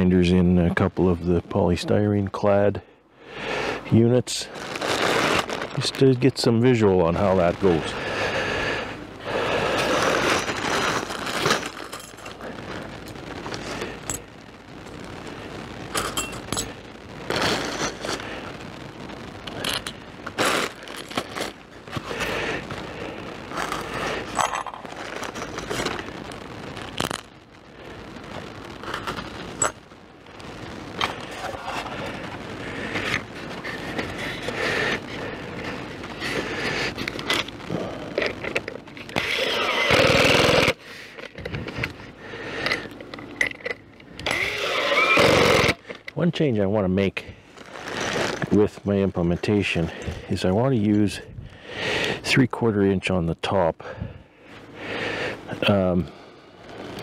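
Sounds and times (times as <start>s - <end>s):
plastic bag crinkling: 4.5s - 6.4s, 9.3s - 14.4s, 19.4s - 44.6s
screws clicking and scraping: 39.1s - 41.4s, 42.6s - 45.8s.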